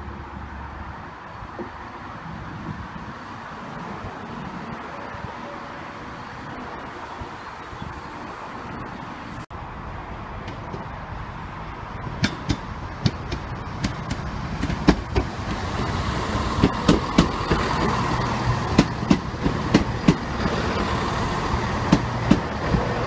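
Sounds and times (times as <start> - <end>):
diesel train engines humming: 0.0 - 23.0
wheels clicking over rail joints: 10.3 - 23.0.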